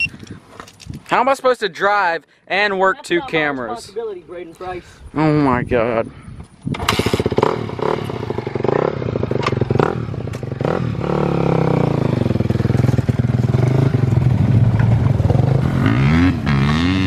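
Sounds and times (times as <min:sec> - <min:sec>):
dirt bike engine: 0:06.5 - 0:17.0.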